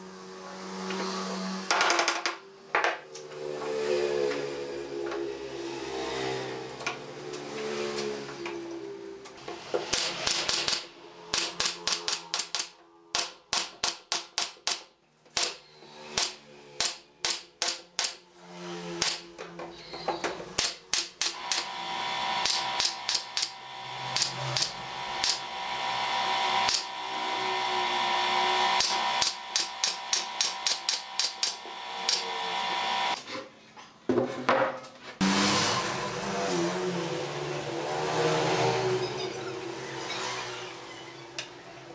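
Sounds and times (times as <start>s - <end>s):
steady drone: 21.2s - 33.2s.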